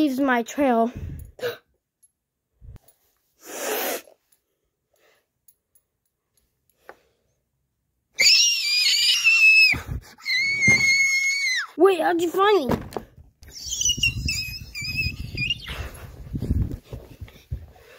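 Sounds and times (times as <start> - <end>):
child squealing: 8.2 - 11.8, 13.5 - 15.8.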